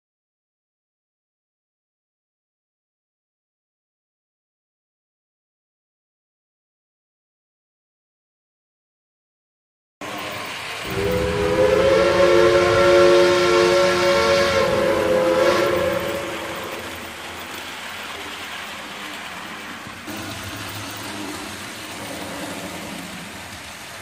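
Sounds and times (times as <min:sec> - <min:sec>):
steam locomotive whistle: 0:10.1 - 0:17.5
steady rushing noise: 0:10.1 - 0:24.0.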